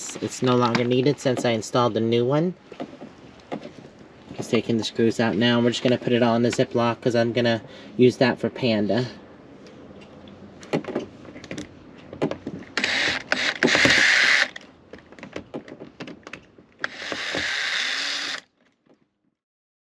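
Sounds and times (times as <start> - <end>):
handling clicks and knocks: 0.0 - 1.6, 2.7 - 4.6, 10.0 - 16.9
cordless drill motor whirring: 12.8 - 14.6, 16.8 - 18.5.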